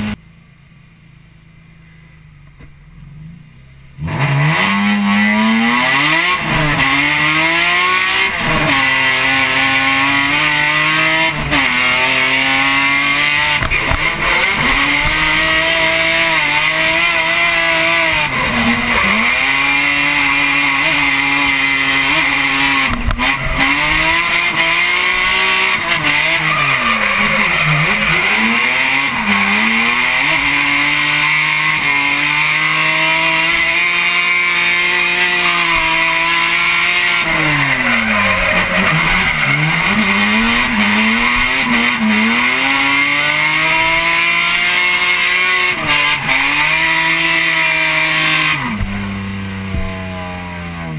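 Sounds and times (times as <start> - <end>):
car engine revving: 1.8 - 50.9
tyre squeal: 11.4 - 32.4, 34.9 - 43.8.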